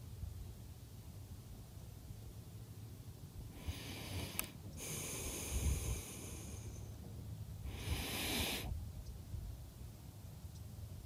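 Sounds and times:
person breathing close to microphone: 3.5s - 7.0s, 7.6s - 8.8s.

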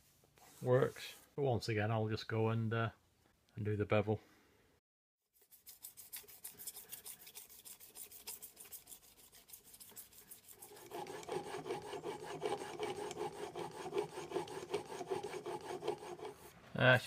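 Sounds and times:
blade rubbing on sharpening stone: 5.4s - 16.5s.

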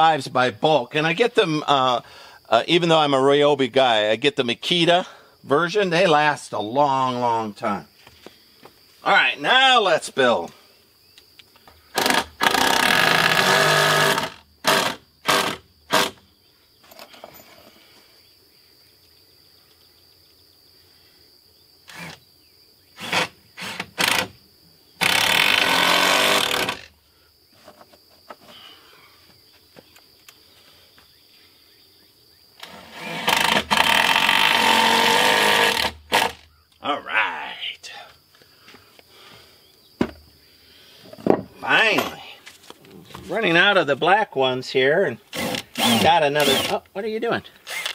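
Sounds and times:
cordless drill driving screws: 11.9s - 16.2s, 21.9s - 22.2s, 23.0s - 24.3s, 25.0s - 26.9s, 32.6s - 36.4s, 45.3s - 46.8s, 47.6s - 47.9s.

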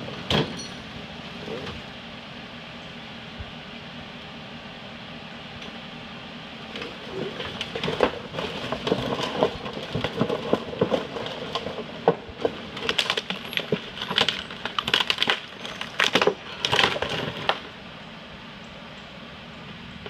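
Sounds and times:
car body scraping along ground: 6.6s - 17.8s.

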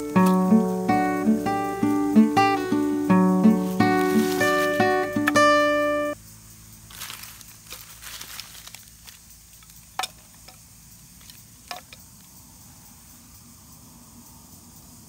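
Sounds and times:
guitar music: 0.0s - 6.2s
soft rustling: 3.4s - 5.3s, 6.9s - 9.9s
firewood knocking: 10.0s - 10.6s.

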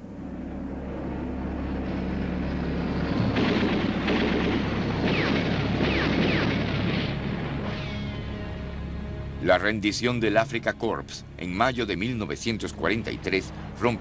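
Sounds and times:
low rumble: 0.0s - 10.6s
artillery blasts: 3.3s - 8.0s
falling whistles: 7.7s - 8.5s.

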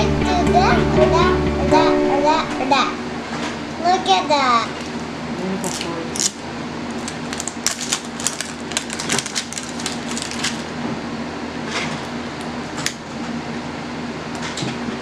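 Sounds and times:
plastic wrapping crinkling and tearing: 4.8s - 10.8s.

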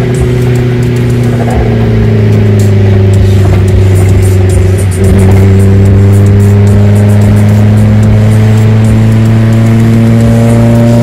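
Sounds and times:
car exhaust drone: 0.0s - 11.0s.

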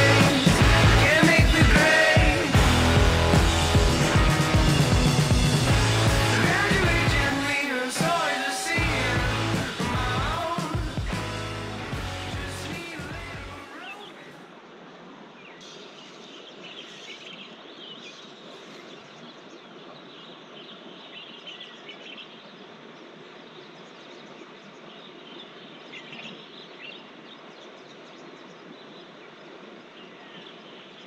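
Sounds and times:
stream rushing: 0.0s - 16.0s
birds chirping: 0.0s - 31.0s.

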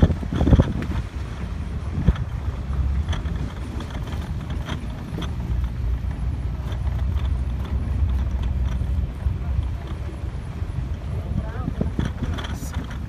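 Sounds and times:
vehicle engine and tyre rumble: 0.0s - 13.0s
small knocks and clicks: 2.0s - 10.0s, 11.8s - 13.0s.

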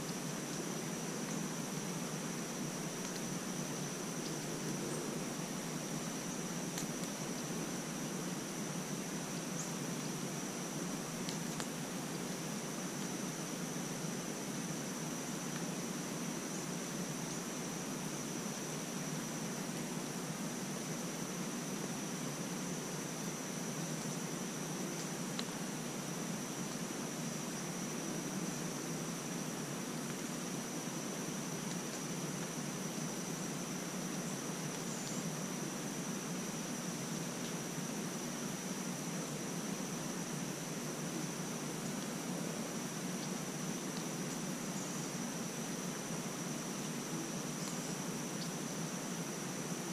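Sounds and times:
steady hiss: 0.0s - 49.9s
high-pitched insect drone: 2.0s - 11.2s
faint ticks: 2.8s - 7.5s, 11.2s - 11.8s, 24.9s - 25.6s, 46.8s - 48.6s
faint tick: 25.0s - 25.5s.

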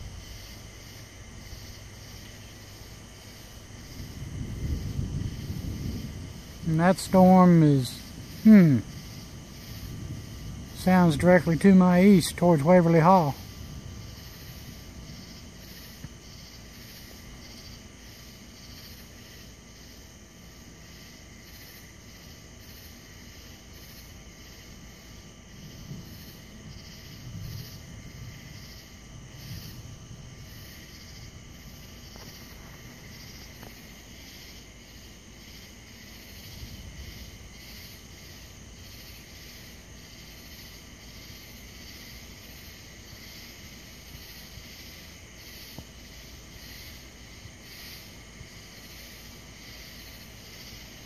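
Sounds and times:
distant thunder rumbles: 0.0s - 19.4s, 23.8s - 51.0s
night insects chorus pulsing: 0.0s - 51.0s.

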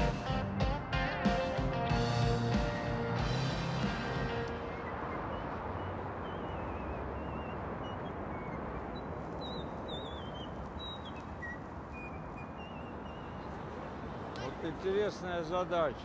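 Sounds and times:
distant city noise: 0.0s - 16.0s
small birds chirping: 4.3s - 15.0s.

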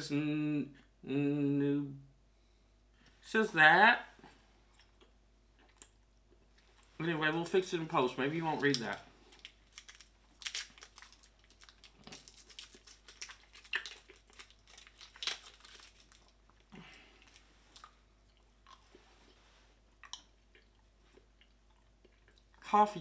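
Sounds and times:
close-up chewing: 4.6s - 7.0s, 8.6s - 22.7s
candy wrapper crackling: 7.6s - 18.0s.

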